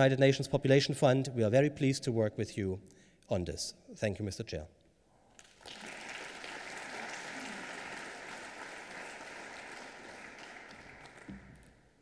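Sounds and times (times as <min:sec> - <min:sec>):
audience applauding: 0:05.4 - 0:11.8.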